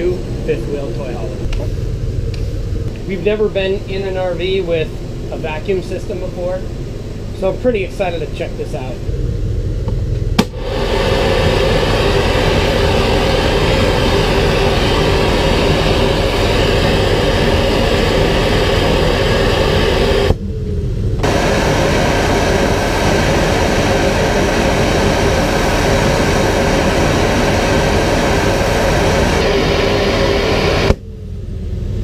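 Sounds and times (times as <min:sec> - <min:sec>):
vacuum motor whirring: 0:10.4 - 0:20.4, 0:21.2 - 0:31.0.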